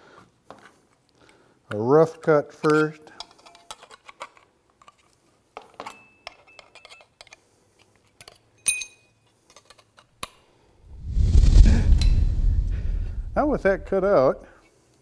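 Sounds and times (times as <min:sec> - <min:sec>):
light metallic clink: 0:08.6 - 0:09.2
loud low rumble: 0:10.9 - 0:14.4.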